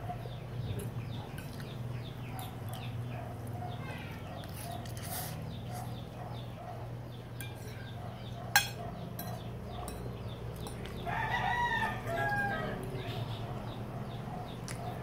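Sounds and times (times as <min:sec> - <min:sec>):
rooster crowing: 0:11.0 - 0:13.1.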